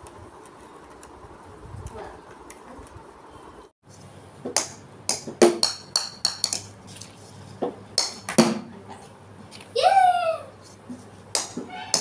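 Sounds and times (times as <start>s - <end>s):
plastic bat and ball clacking: 4.5s - 6.7s, 8.0s - 8.6s, 11.3s - 12.0s.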